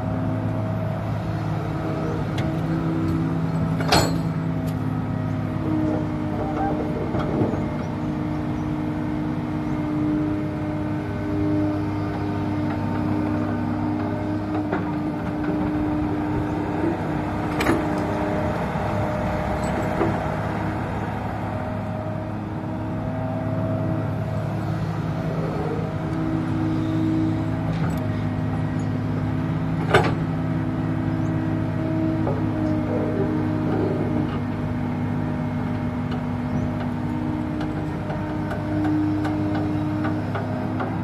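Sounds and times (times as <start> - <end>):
excavator engine and hydraulics: 0.0 - 41.0.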